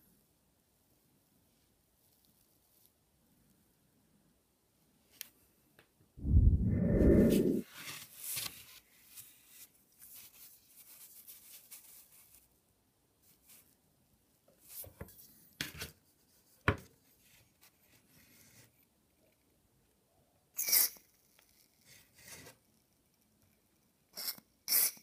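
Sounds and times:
soft rustling: 0.9 - 3.6.

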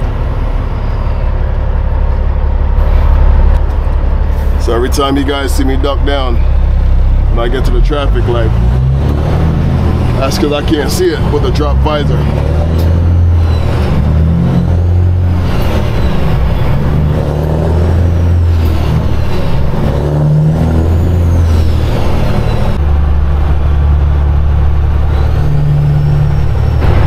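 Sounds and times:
truck diesel engine under load: 0.0 - 27.0.

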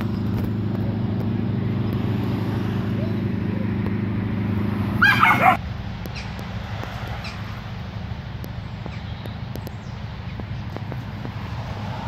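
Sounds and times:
dog yelping: 5.0 - 5.6.

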